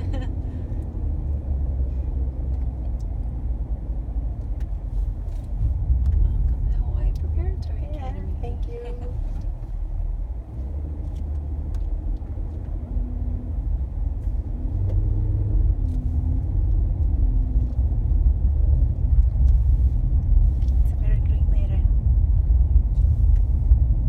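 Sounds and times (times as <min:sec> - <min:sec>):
car engine and tyres rumble: 0:00.0 - 0:24.0.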